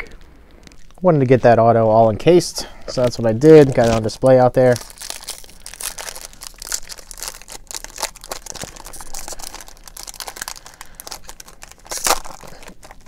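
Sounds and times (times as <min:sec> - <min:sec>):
wrapper tearing and crinkling: 0:03.4 - 0:13.0.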